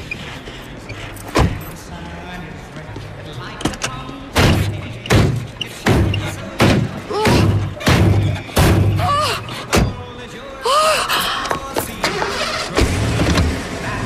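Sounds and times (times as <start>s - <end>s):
car door banging on metal: 4.4s - 9.0s.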